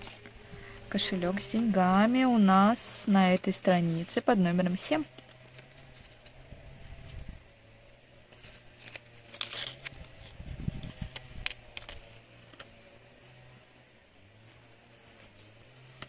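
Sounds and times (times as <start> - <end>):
paper rustling and crinkling: 8.3 - 12.7.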